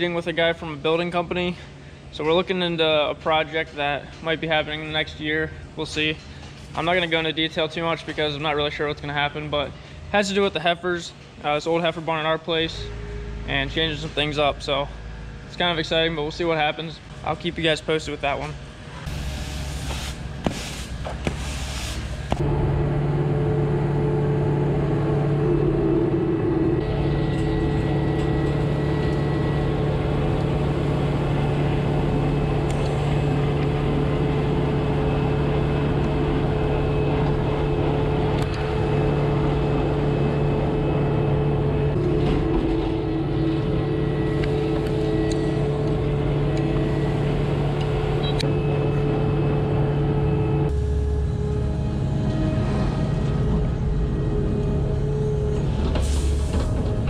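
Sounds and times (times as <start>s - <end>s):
loader engine running: 18.6s - 57.0s.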